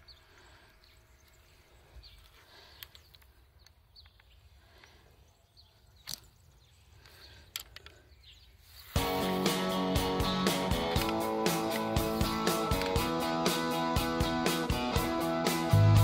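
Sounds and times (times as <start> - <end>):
small birds chirping: 0.0 - 16.0
faint clicks: 2.2 - 5.0, 6.0 - 6.4, 7.0 - 8.1.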